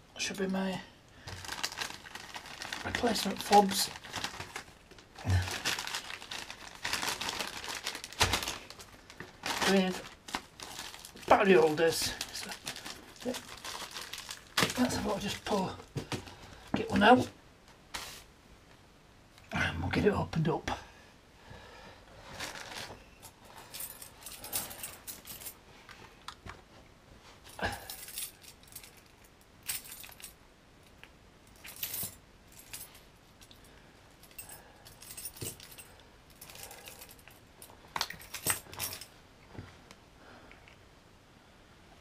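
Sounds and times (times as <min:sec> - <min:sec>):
keys jangling: 0:27.8 - 0:30.4, 0:34.3 - 0:37.4, 0:38.0 - 0:39.1.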